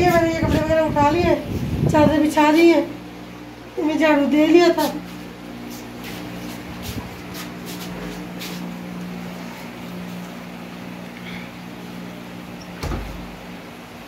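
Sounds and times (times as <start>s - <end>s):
appliance electrical hum: 0.0s - 14.0s
thump: 12.8s - 13.3s.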